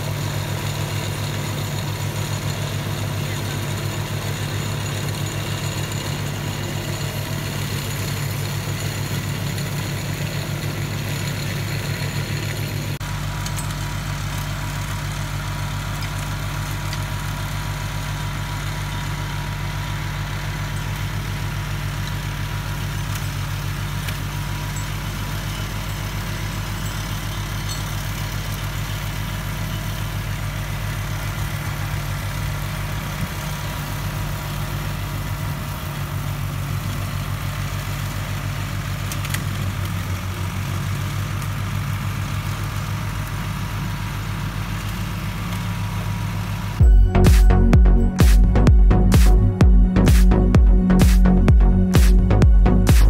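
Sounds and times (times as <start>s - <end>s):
flail mower cutting plants: 0.0s - 47.5s
tractor diesel engine running: 0.0s - 53.0s.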